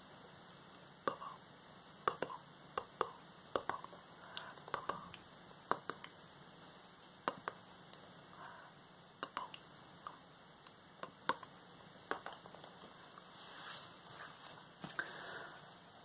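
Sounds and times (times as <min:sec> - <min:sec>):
woman whispering: 0:01.1 - 0:01.4.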